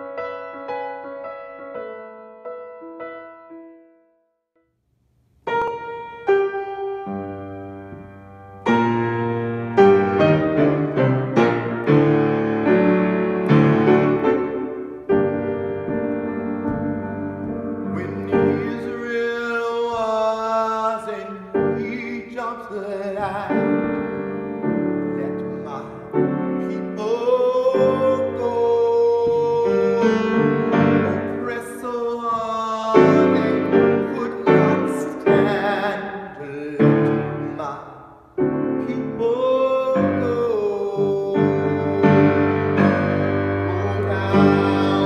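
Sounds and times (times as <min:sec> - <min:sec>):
grand piano chords: 0:00.0 - 0:45.0
man singing: 0:16.7 - 0:45.0.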